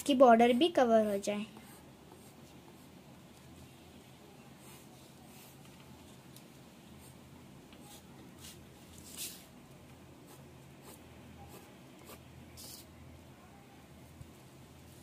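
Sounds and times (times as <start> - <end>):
pencil scratching on paper: 0.3 - 3.0, 4.5 - 5.7, 10.2 - 12.9.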